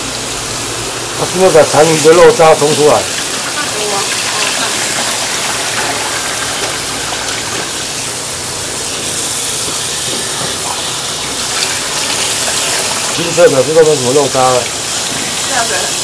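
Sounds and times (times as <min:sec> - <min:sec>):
tap water running into pot: 0:00.0 - 0:16.0.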